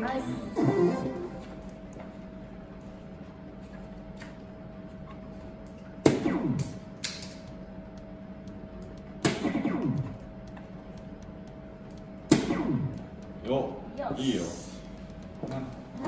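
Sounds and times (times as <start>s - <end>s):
darts striking dartboard: 12.3s - 12.8s.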